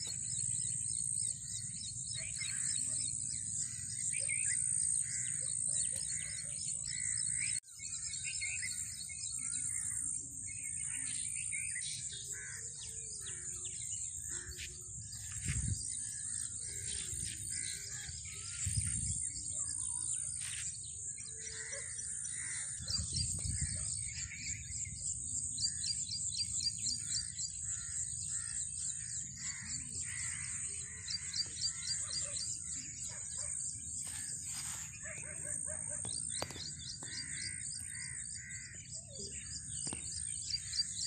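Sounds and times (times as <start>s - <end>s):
birds chirping: 0.0s - 41.0s
wind rumble on microphone: 14.9s - 19.5s, 22.6s - 24.3s.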